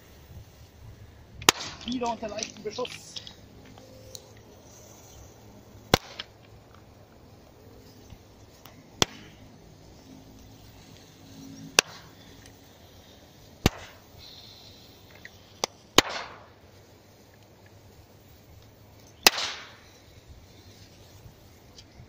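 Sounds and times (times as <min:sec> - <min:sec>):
sharp cracks of shots: 0:01.4 - 0:02.1, 0:05.8 - 0:06.3, 0:09.0 - 0:09.4, 0:11.8 - 0:12.2, 0:13.6 - 0:14.1, 0:15.6 - 0:16.6, 0:19.2 - 0:19.9
brief hiss: 0:10.8 - 0:22.0.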